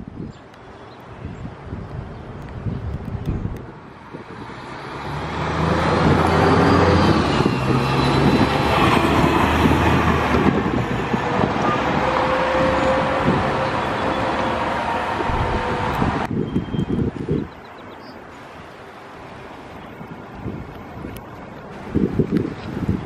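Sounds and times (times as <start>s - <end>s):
bus driving past: 3.8s - 16.8s.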